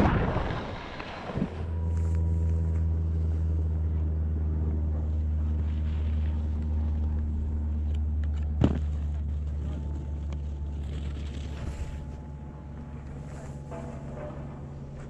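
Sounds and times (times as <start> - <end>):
rushing wind noise: 0.0 - 1.8
steady low hum with overtones: 0.0 - 15.0.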